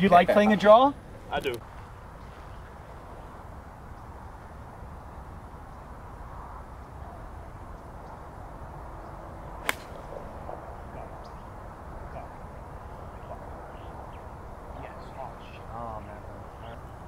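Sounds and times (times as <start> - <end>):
low outdoor rumble: 0.0 - 17.0
golf club striking ball: 9.6 - 10.1.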